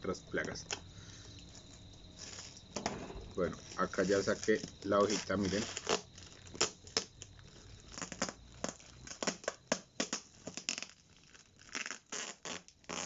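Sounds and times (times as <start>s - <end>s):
adhesive tearing: 3.2s - 13.0s
plastic pouch crinkling: 3.3s - 13.0s.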